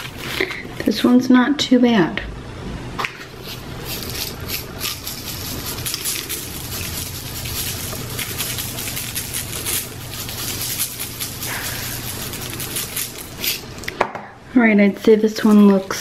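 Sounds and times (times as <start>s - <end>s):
sprinkles rattling in a shaker: 3.4s - 13.7s, 15.2s - 16.0s
sprinkles pattering onto paper: 3.8s - 13.6s.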